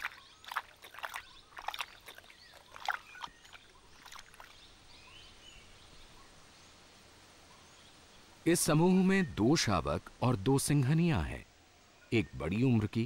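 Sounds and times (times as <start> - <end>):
lions lapping water: 0.0 - 4.8
bird chirping faintly: 0.0 - 9.8.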